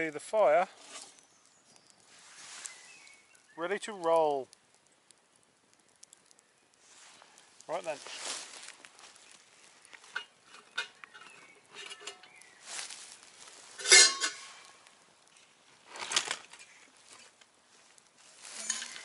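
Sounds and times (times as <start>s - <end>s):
metal pot and lid clinking: 10.1s - 12.4s, 13.8s - 14.6s, 18.6s - 19.0s
ringing metal clank: 13.8s - 14.6s, 18.6s - 19.0s.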